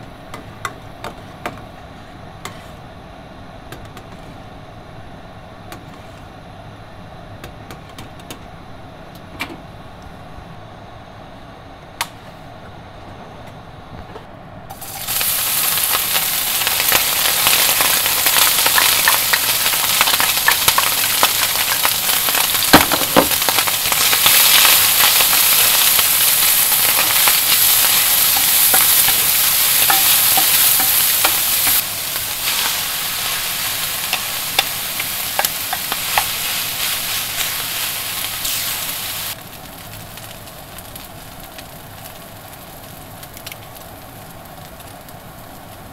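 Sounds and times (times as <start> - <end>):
onion and meat sizzling in oil: 14.7 - 45.9.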